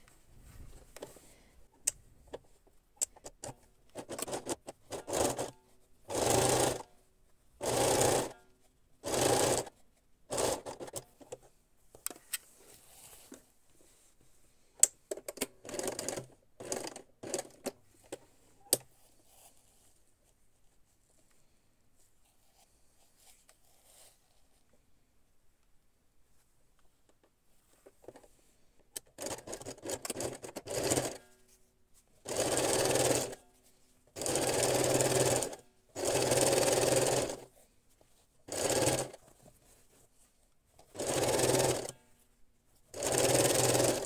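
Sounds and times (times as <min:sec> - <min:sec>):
sewing machine stitching: 0:04.0 - 0:05.5, 0:06.1 - 0:06.8, 0:07.6 - 0:08.4, 0:09.0 - 0:09.7, 0:10.3 - 0:11.0, 0:29.2 - 0:31.2, 0:32.2 - 0:33.4, 0:34.2 - 0:37.5, 0:38.5 - 0:39.2, 0:40.8 - 0:42.0, 0:42.9 - 0:44.0.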